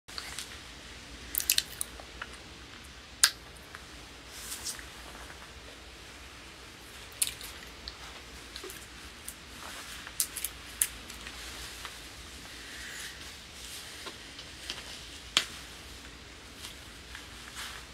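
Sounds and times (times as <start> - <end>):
low steady hum: 0.1 - 17.9.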